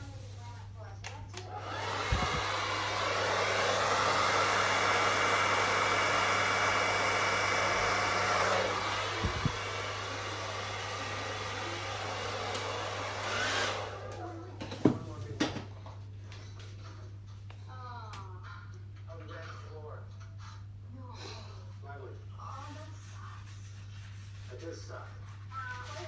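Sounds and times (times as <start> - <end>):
hair dryer blowing: 1.0 - 15.2.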